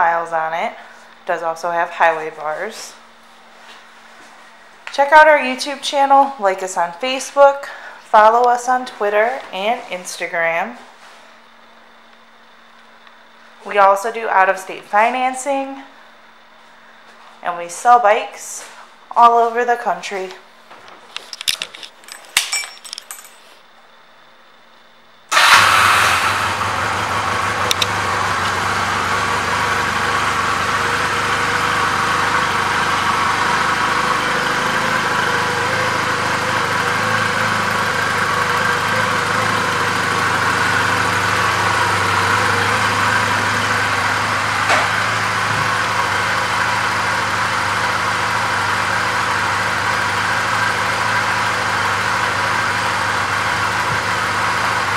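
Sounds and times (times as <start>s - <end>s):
motorcycle engine starting and idling: 25.3s - 54.9s.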